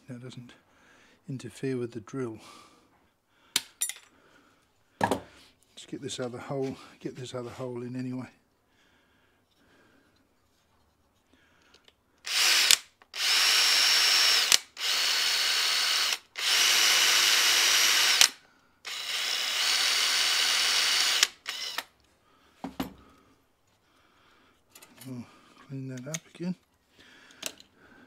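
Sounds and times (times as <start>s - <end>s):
cordless drill whining: 12.2s - 22.1s.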